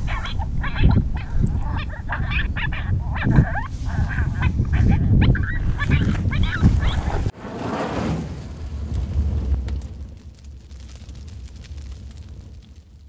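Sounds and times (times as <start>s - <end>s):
coyotes yipping and howling: 0.0s - 7.3s
low rumble: 4.0s - 13.0s.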